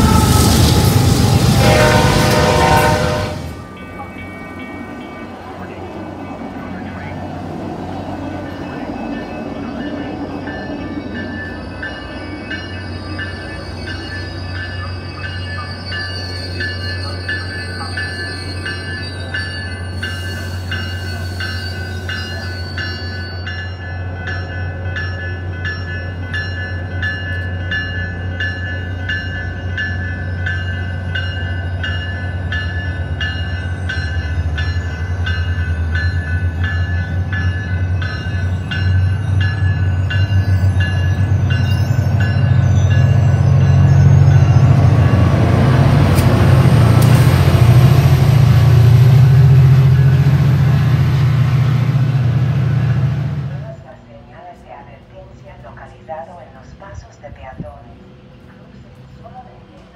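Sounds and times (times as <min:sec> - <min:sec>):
train bell ringing: 0:00.0 - 0:54.0
train drone: 0:00.0 - 0:59.9.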